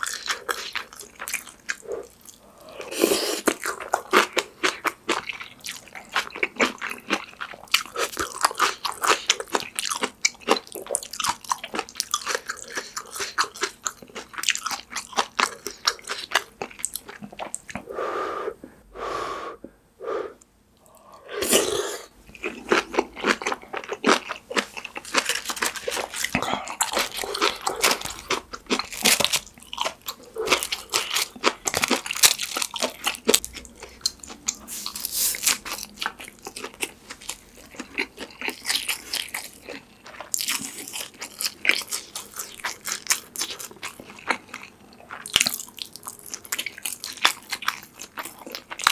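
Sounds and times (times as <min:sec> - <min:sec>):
breathy puffs: 0:17.8 - 0:22.1
wet crunchy chewing: 0:20.8 - 0:48.9.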